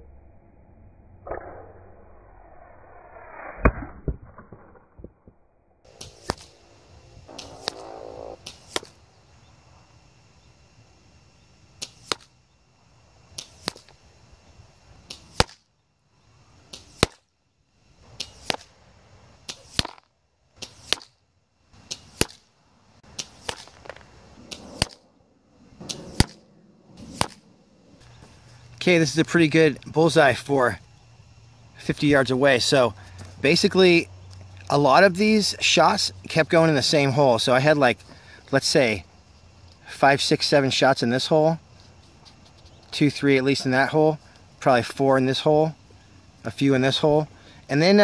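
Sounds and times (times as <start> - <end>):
air rifle shots: 23.0 - 28.0.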